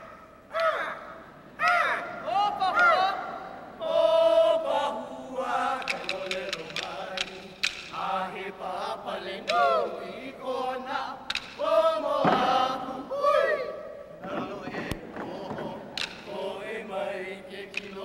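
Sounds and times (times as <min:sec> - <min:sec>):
wooden sticks clicking: 0:01.6 - 0:01.9, 0:05.6 - 0:08.4, 0:09.4 - 0:09.9, 0:11.2 - 0:11.8, 0:14.2 - 0:16.6, 0:17.5 - 0:18.0
men chanting together: 0:01.7 - 0:18.0.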